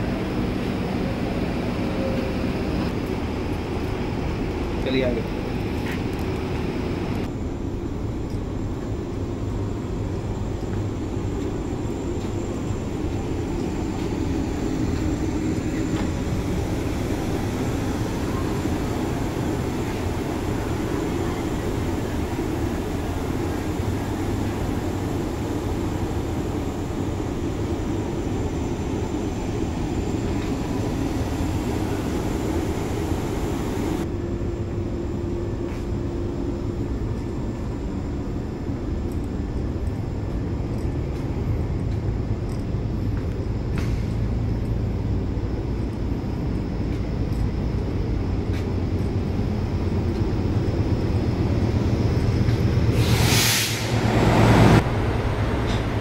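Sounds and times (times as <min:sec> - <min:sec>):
train coach rumble: 0:00.0 - 0:56.0
hiss: 0:14.0 - 0:34.0, 0:52.8 - 0:54.8.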